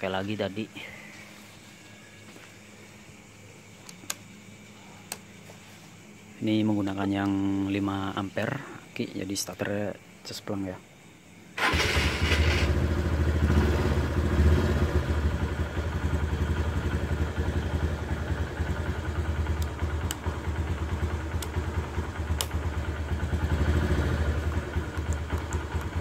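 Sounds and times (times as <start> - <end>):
motorcycle engine idling: 11.6 - 26.0
faint clicks: 24.5 - 26.0.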